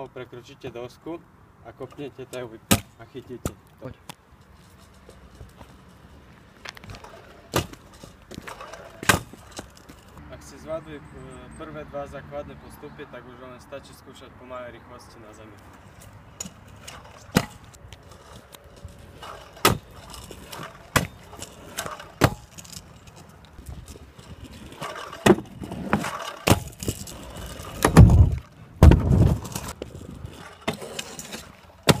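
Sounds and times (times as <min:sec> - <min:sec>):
small wheels rolling: 0:03.6 - 0:10.2, 0:15.3 - 0:32.0
heavy thuds: 0:27.7 - 0:29.8.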